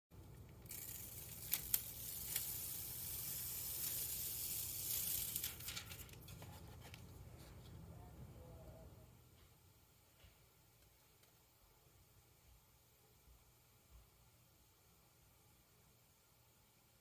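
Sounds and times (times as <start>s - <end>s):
foil peeling crackling hiss: 0.6s - 7.0s
paper rustling: 0.6s - 7.8s.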